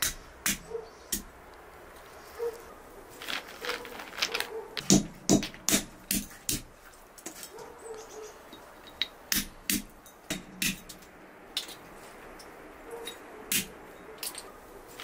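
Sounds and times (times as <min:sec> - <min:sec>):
brass pestle striking walnuts: 0:04.8 - 0:06.7.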